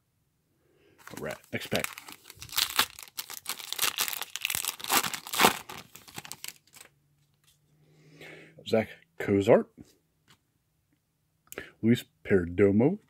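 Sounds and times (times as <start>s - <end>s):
plastic wrapper crinkling and tearing: 1.0s - 6.9s.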